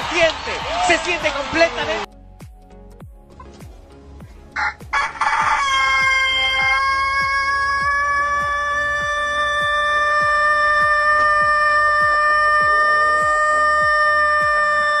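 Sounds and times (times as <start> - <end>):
rooster crowing: 4.6 - 15.0.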